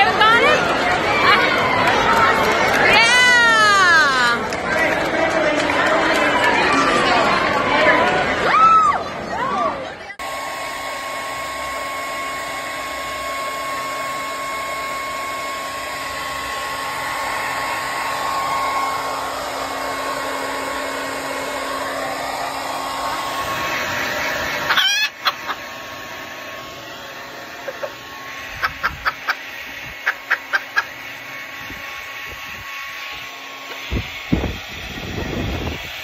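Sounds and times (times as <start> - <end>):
hair dryer running: 0.0 - 9.1, 10.1 - 36.0
chicken call: 24.5 - 25.6, 27.6 - 29.4, 30.0 - 31.0.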